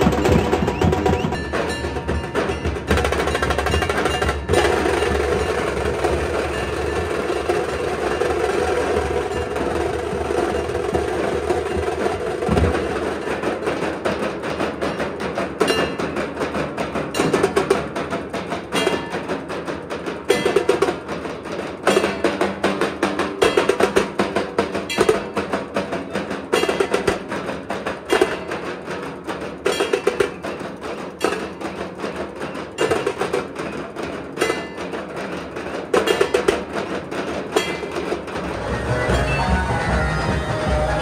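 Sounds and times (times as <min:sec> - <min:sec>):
cymbals: 0:00.0 - 0:14.2, 0:37.5 - 0:41.0
dhol drum band playing: 0:00.0 - 0:41.0
rapid sharp drum strokes: 0:00.0 - 0:41.0.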